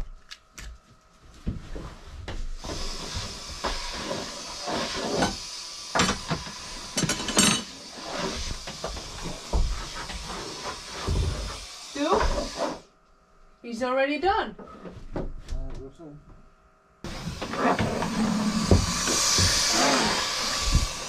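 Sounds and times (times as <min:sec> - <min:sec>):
power sander running: 0:17.1 - 0:21.0.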